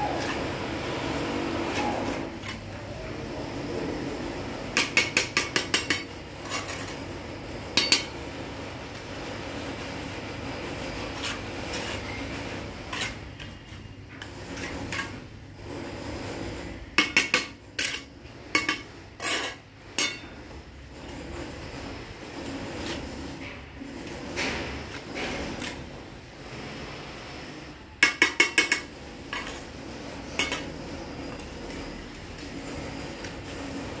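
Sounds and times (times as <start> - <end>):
trowel scraping mortar: 0.0 - 34.0
trowel clinking against bricks: 4.7 - 7.0, 7.7 - 8.2, 17.0 - 20.7, 28.0 - 33.6.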